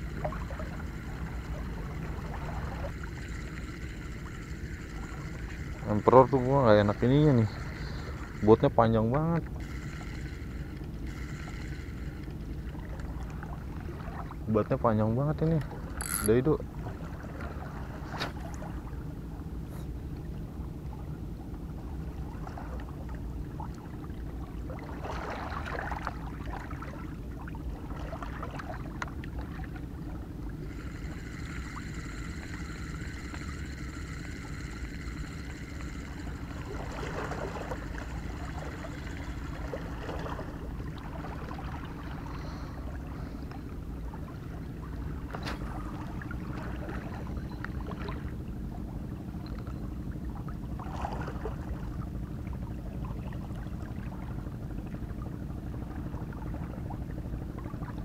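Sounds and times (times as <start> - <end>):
high whining tone: 0.0 - 12.6, 16.0 - 16.4, 30.6 - 40.9
boat engine droning: 0.0 - 58.0.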